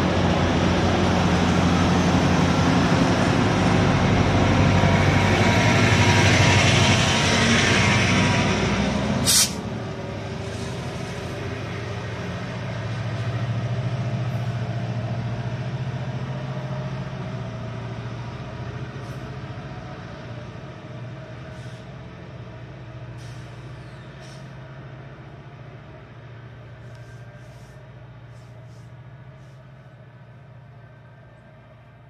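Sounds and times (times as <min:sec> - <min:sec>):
diesel locomotive engine drone: 0:00.0 - 0:32.0
air hiss burst: 0:09.2 - 0:09.6.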